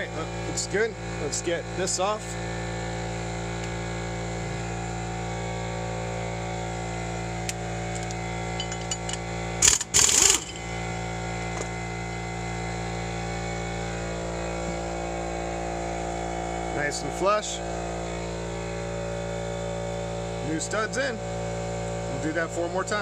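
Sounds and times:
steady hum: 0:00.0 - 0:23.0
power wrench spinning lug nut: 0:07.4 - 0:11.8.

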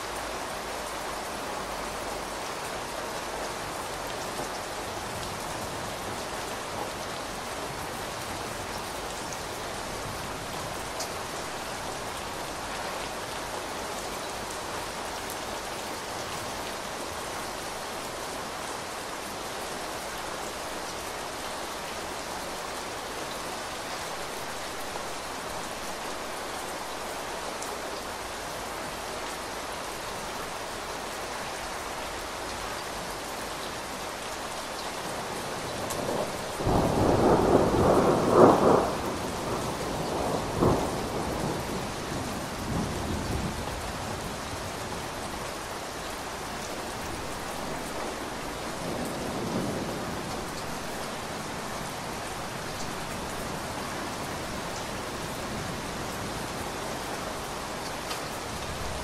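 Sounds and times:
heavy rain on a window: 0:00.0 - 0:59.0
thunder rolling and cracking: 0:36.1 - 0:41.3.

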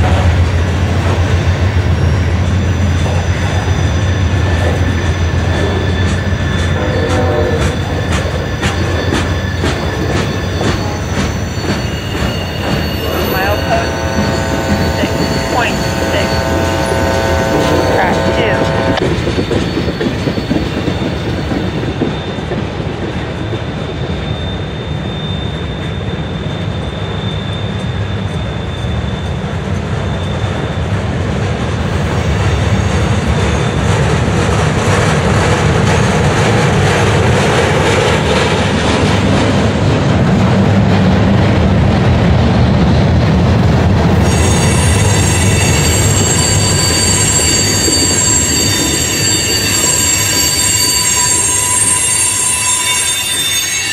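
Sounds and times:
freight cars rumbling on rails: 0:00.0 - 0:53.9
high-pitched wheel squeal: 0:01.7 - 0:22.6, 0:23.9 - 0:30.8, 0:44.1 - 0:53.9.

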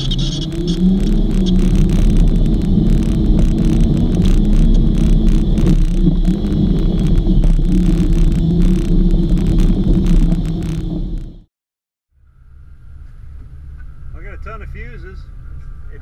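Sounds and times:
engine running under load: 0:00.0 - 0:11.4.

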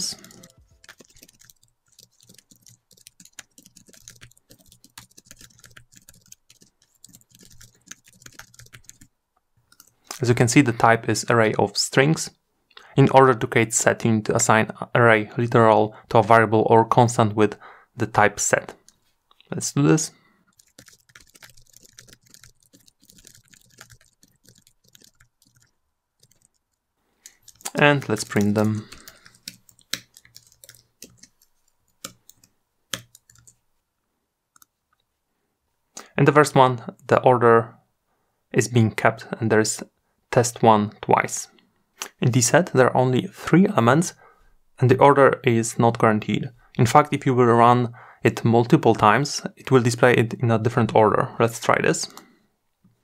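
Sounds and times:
keyboard typing: 0:00.0 - 0:10.2, 0:20.5 - 0:33.6.

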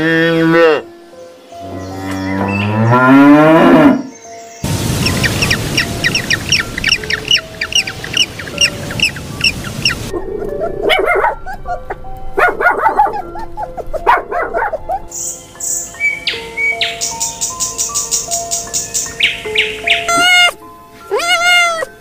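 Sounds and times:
light background music: 0:00.0 - 0:22.0
rapid high chirps: 0:04.6 - 0:10.1
small dog barking: 0:10.8 - 0:11.6, 0:12.4 - 0:13.3, 0:14.0 - 0:15.0.

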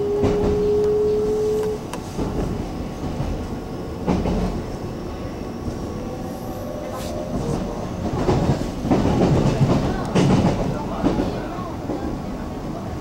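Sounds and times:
train traction motor whine: 0:00.0 - 0:08.8
train rumble: 0:00.0 - 0:13.0.

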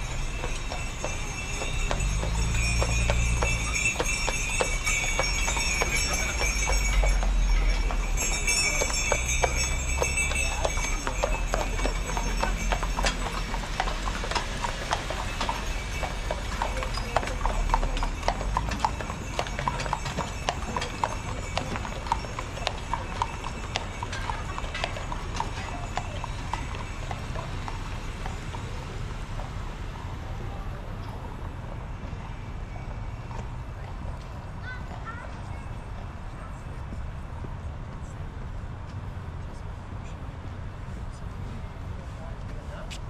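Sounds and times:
horse hooves clip-clopping: 0:00.0 - 0:29.6.

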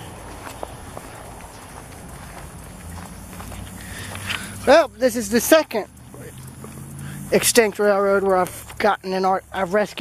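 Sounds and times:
footsteps on grass: 0:00.0 - 0:05.3.

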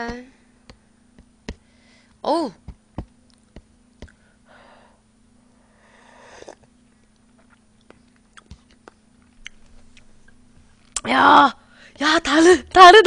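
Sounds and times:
slurping noodles: 0:06.0 - 0:06.7.

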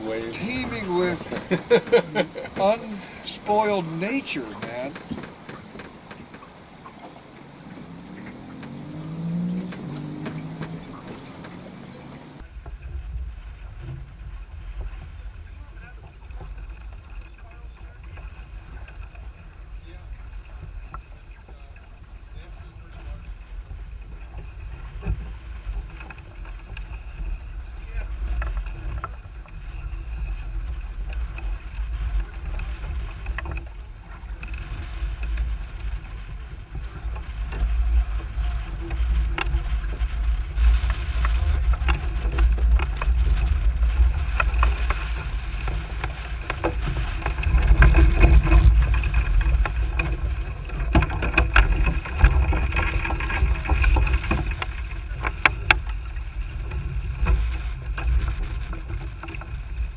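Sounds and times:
water splashing against hull: 0:00.0 - 0:59.9
wind rumbling on microphone: 0:00.0 - 0:59.9
knocks and clicks: 0:04.5 - 0:12.4.

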